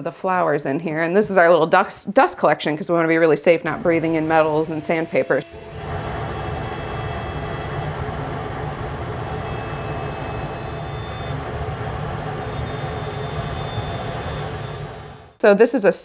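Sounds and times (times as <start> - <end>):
dust collector whirring: 3.6 - 15.4
rotary tool grinding metal: 3.7 - 11.1.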